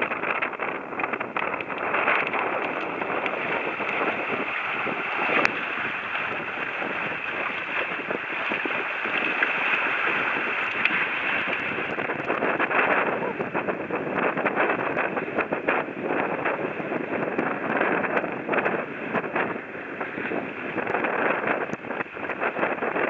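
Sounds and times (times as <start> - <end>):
wind and water rushing: 0.0 - 23.0
wind buffeting microphone: 0.0 - 23.0.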